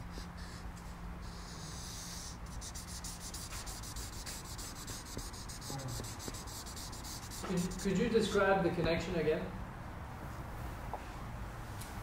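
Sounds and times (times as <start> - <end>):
marker scratching on paper: 0.0 - 8.2.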